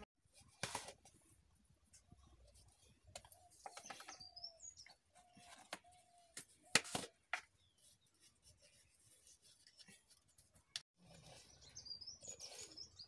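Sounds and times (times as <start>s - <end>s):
birds chirping: 2.8s - 6.7s, 7.4s - 13.0s.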